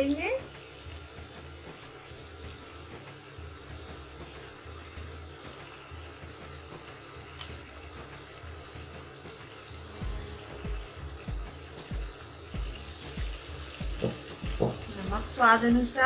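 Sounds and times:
faint sizzle: 0.0 - 16.0
dull knocks of stirring: 11.3 - 15.2.

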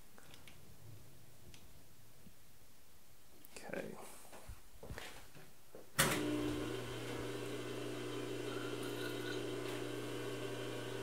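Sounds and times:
lathe motor humming: 6.2 - 11.0.

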